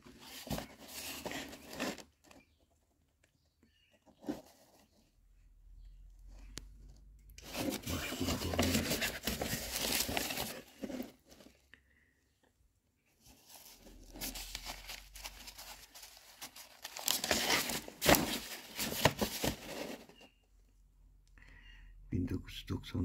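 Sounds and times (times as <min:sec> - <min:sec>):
paper rustling and crackling: 0:00.0 - 0:02.6, 0:06.7 - 0:11.6, 0:13.2 - 0:20.4.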